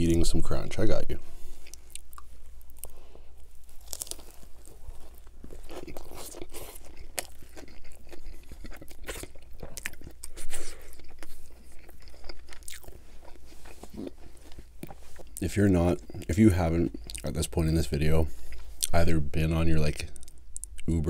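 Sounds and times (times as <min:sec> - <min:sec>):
chewing crunchy sandwich: 0:01.4 - 0:17.6.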